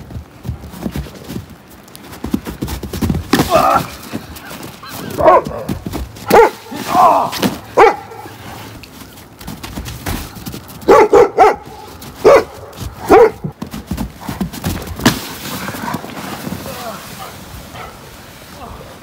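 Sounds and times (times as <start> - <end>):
dog barking: 4.9 - 6.7, 7.7 - 8.4, 10.8 - 13.5, 17.2 - 18.0.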